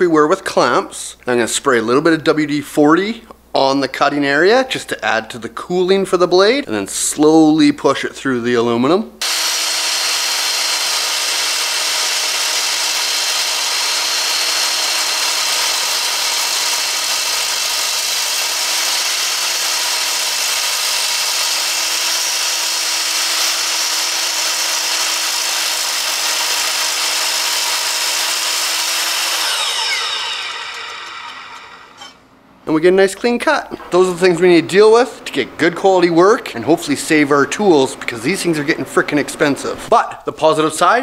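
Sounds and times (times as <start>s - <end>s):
saw motor whining: 9.2s - 32.2s
saw blade screeching on metal: 29.2s - 32.2s.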